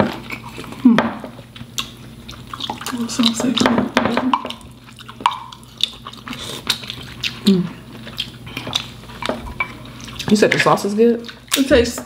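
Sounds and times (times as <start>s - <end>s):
wet eating sounds: 0.0s - 12.0s
person humming: 7.4s - 7.8s.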